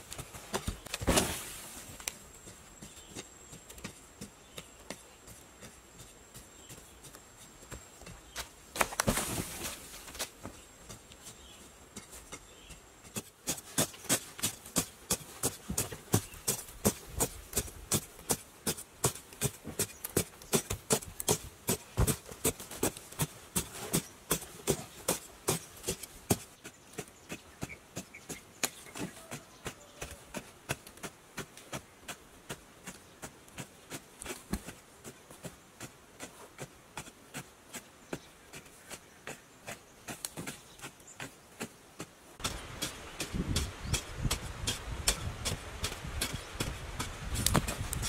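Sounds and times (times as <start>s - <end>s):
digging stick striking soil: 8.3s - 10.4s, 42.4s - 48.0s.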